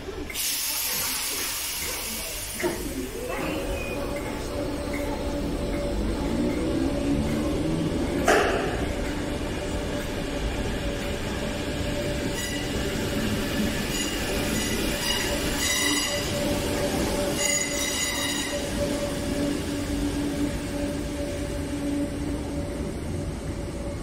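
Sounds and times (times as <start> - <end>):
electric train rumbling: 0.0 - 24.0.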